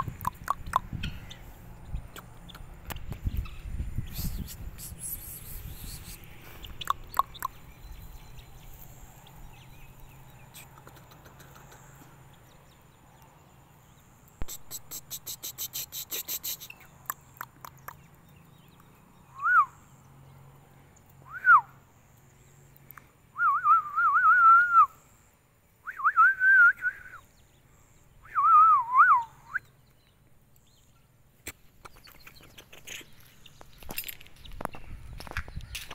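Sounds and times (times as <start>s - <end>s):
person whistling: 19.4s - 19.7s, 21.3s - 21.7s, 23.4s - 25.0s, 25.8s - 27.2s, 28.2s - 29.7s.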